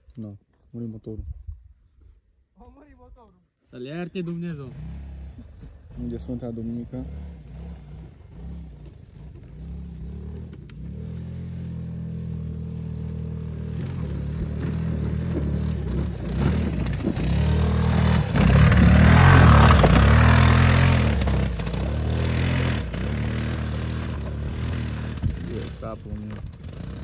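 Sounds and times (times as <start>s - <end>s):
vehicle engine revving: 4.3s - 27.0s.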